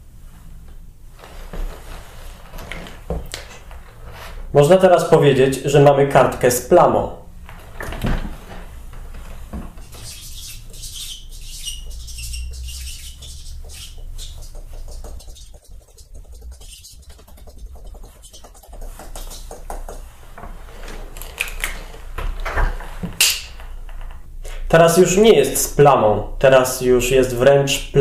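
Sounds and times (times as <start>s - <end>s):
fingertips tapping paint on paper: 9.8s - 20.1s.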